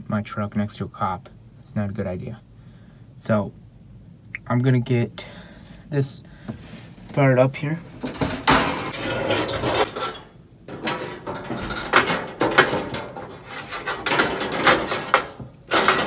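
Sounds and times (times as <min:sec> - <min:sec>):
metal clanks and rattles: 0:07.8 - 0:16.0.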